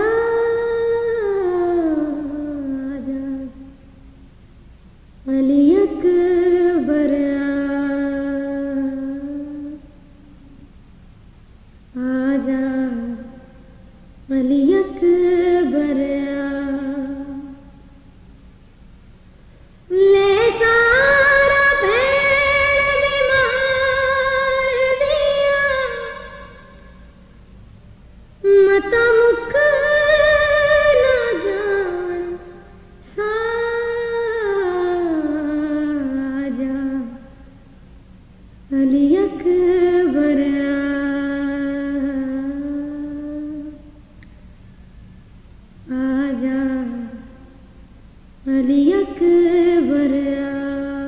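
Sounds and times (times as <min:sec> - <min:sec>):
woman singing a lament: 0:12.0 - 0:13.6, 0:14.3 - 0:17.6, 0:19.9 - 0:27.0, 0:28.4 - 0:37.3, 0:38.7 - 0:43.9, 0:45.9 - 0:47.5, 0:48.5 - 0:51.0.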